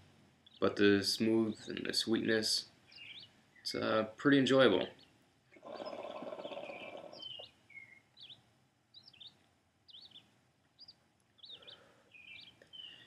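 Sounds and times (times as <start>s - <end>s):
birds chirping faintly: 0.0s - 13.0s
hookah bubbling: 5.6s - 7.3s.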